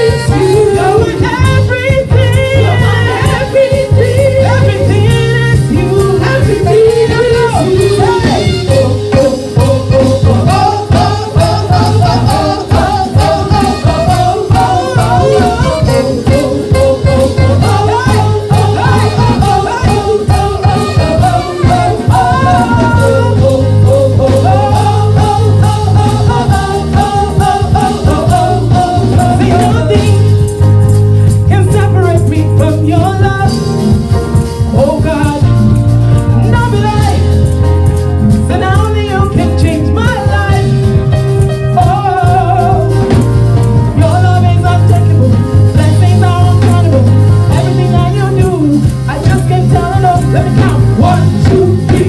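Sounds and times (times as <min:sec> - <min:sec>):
bass line: 0:00.0 - 0:52.0
gospel worship singing: 0:00.0 - 0:52.0
steady beat: 0:00.1 - 0:32.0.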